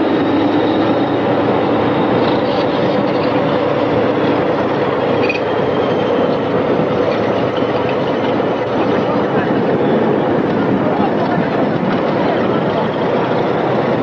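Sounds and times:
heavy machinery running: 0.0s - 14.0s
high metallic squeals: 0.1s - 8.7s.

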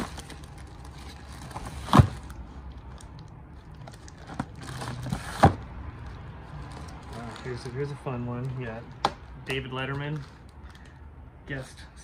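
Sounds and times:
plastic sleeves crinkling: 6.0s - 11.0s.

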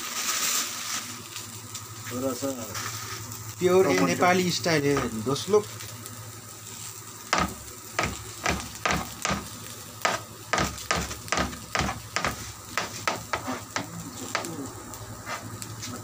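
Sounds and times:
vegetables sizzling in a wok: 0.0s - 16.0s
knife chopping on plastic board: 7.4s - 14.5s.

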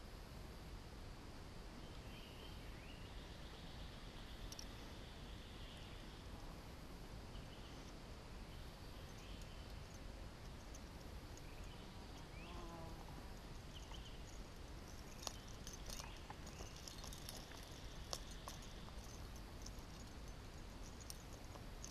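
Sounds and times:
insect calls: 1.8s - 21.9s
bird calls: 13.5s - 20.1s.

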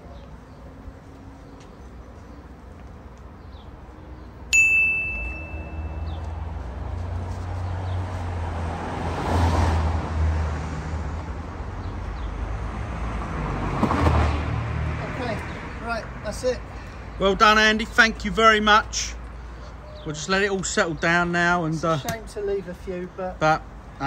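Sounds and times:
street traffic: 0.0s - 24.0s
sharp metallic ding: 4.5s - 6.2s.

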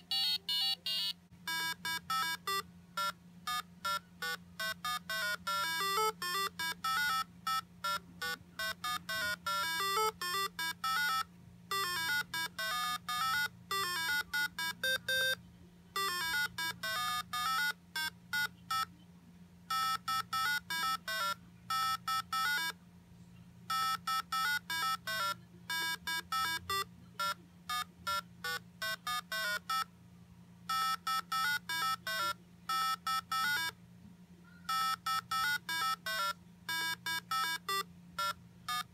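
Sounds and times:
square-wave beeping tune: 0.0s - 15.4s.

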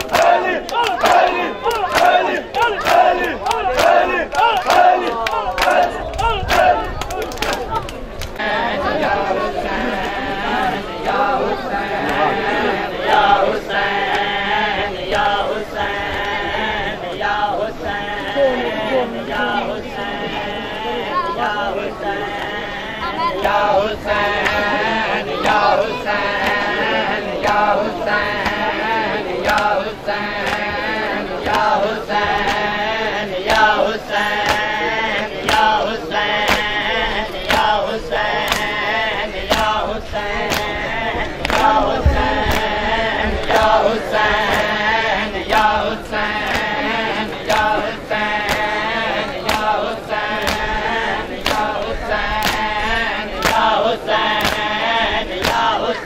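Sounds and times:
men chanting a lament: 0.0s - 56.0s.

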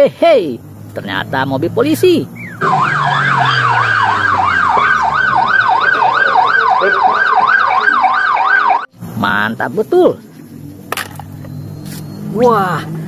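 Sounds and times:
police siren yelp: 2.4s - 8.9s.

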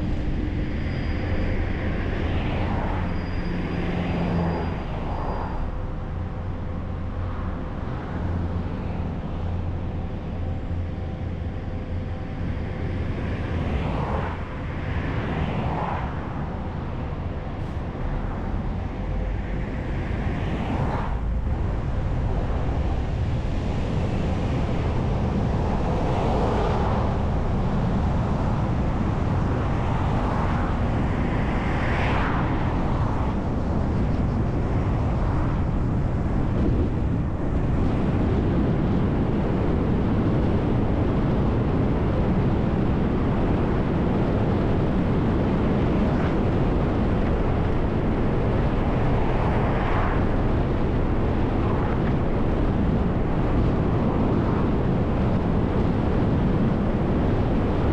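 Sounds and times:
bus driving rumble: 16.4s - 30.5s.

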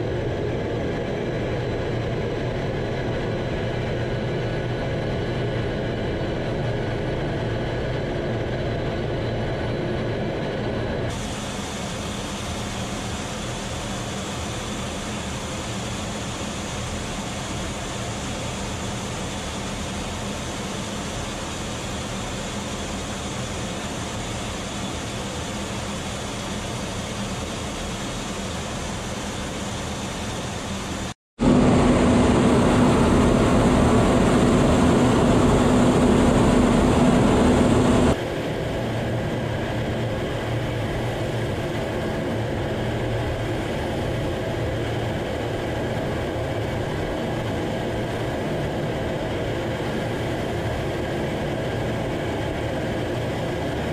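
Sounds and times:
jet cockpit engine and airflow: 0.0s - 53.9s
low hum: 20.5s - 53.9s.

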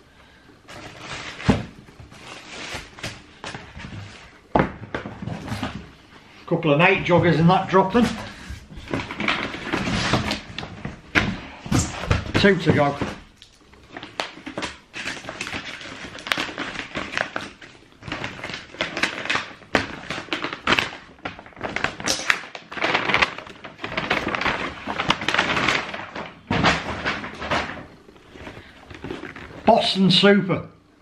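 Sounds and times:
cardboard boxes rustling and scraping: 0.7s - 6.0s.

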